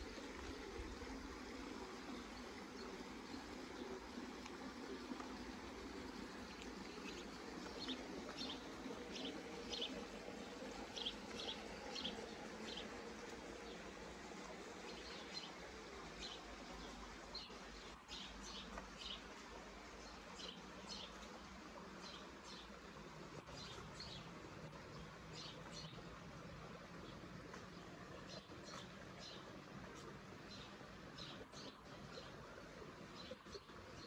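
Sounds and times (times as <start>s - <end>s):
small birds chirping: 1.9s - 34.0s.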